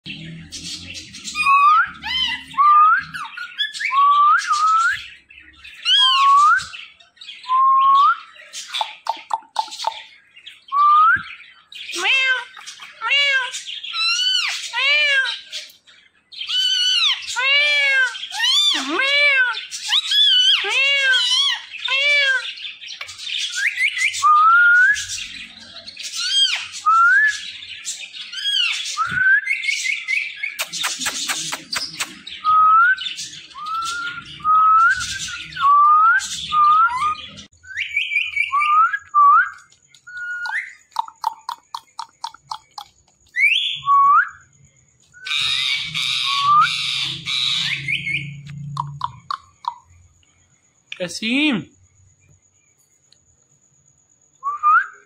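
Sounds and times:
parakeets squawking and screeching: 0.0 - 10.7, 11.3 - 38.7, 45.2 - 49.9.

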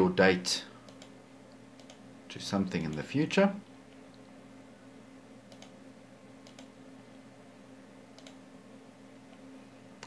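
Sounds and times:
low electrical hum: 0.0 - 10.0
faint computer clicks: 0.8 - 2.0, 5.5 - 5.8, 6.4 - 6.7, 8.1 - 8.4.

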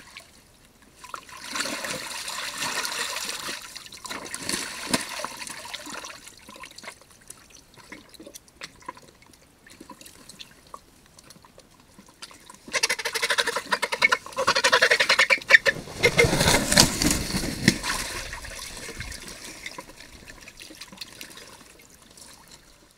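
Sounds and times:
bird wings splashing water: 12.8 - 21.8.

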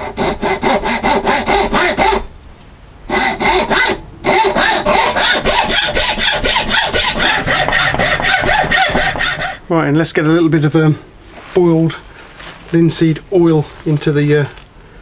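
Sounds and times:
hacksaw cutting wood: 0.0 - 2.3, 3.1 - 9.6.

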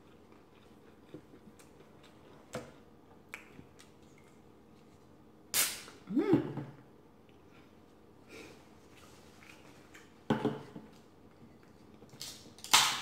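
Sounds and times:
soda can opening with hiss: 5.5 - 5.9.

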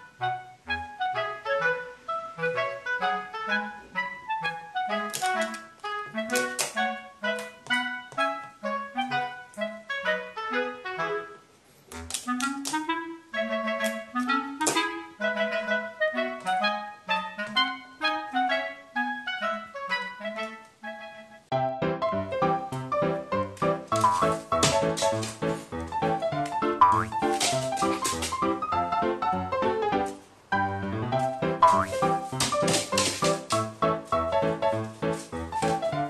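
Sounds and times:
bouncy staccato tune: 26.0 - 28.7, 31.4 - 34.1.

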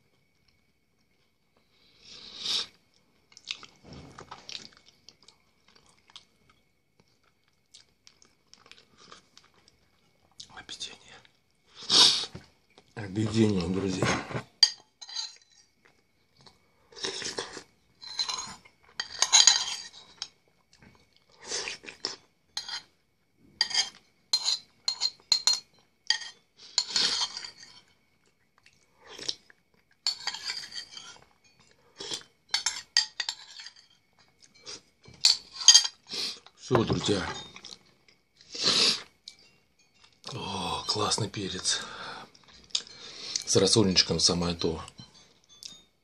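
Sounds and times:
chewing and crunching: 3.2 - 10.5, 15.4 - 22.9, 25.8 - 35.0
metal spoon scraping a bowl: 14.0 - 15.7, 18.0 - 20.3, 22.6 - 22.9, 23.6 - 28.0, 30.0 - 34.0.

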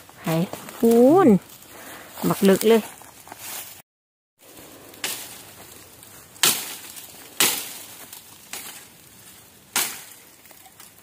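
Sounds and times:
machete chopping into bamboo and soil: 5.0 - 5.5, 6.4 - 8.9, 9.7 - 10.9.

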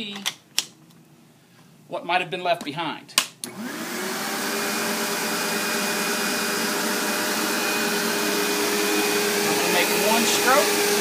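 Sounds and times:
vacuum cleaner motor whine: 3.5 - 11.0.

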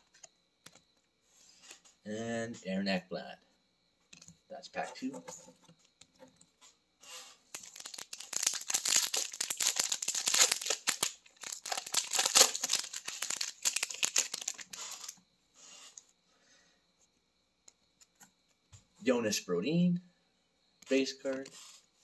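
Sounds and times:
foil wrapper tearing and crinkling: 7.5 - 15.2.

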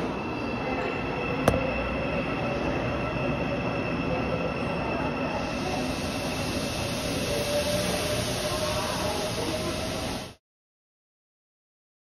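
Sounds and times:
subway train running: 0.0 - 10.4.

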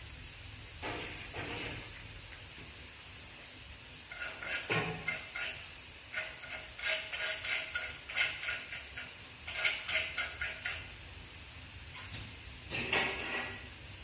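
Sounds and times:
metal profiles clinking and scraping: 4.1 - 10.9, 12.7 - 13.7.

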